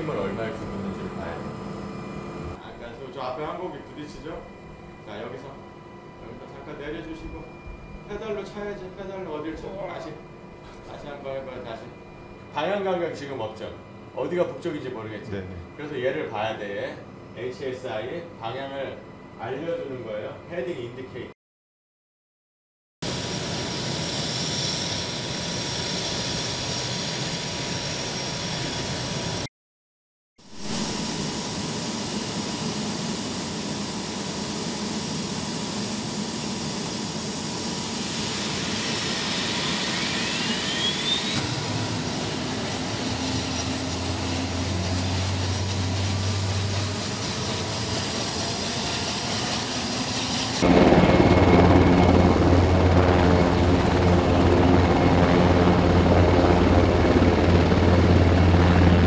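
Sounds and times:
rising whine: 0.0 - 2.6, 37.0 - 59.0
helicopter lifting off: 0.0 - 2.7, 23.0 - 29.5, 30.6 - 59.0
helicopter engines whining: 0.0 - 15.9, 23.0 - 29.5, 30.6 - 59.0.

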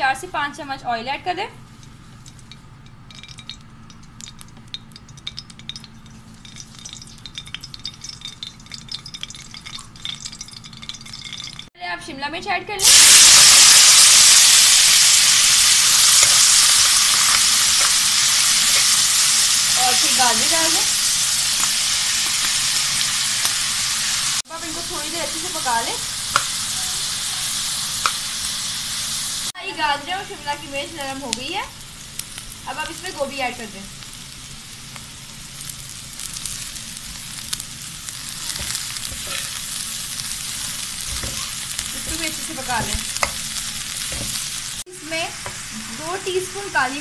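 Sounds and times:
metal spoon stirring in wok: 1.6 - 11.7, 38.1 - 44.8
oil crackling and popping: 1.6 - 11.7, 12.8 - 28.8, 30.5 - 45.6.

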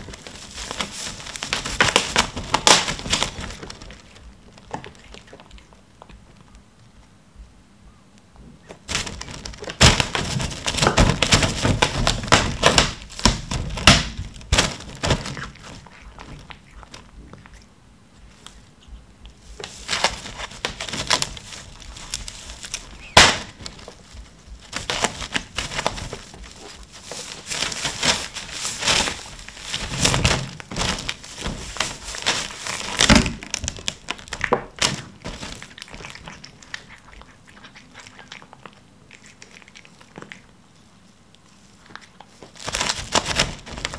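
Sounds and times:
plastic film crinkling: 0.0 - 5.7, 8.8 - 17.6, 19.4 - 37.3, 42.3 - 43.9.

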